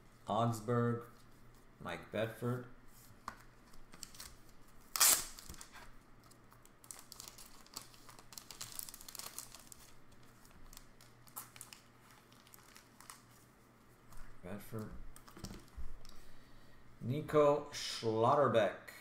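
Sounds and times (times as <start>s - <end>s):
plastic card sleeves crinkling: 3.0s - 16.2s.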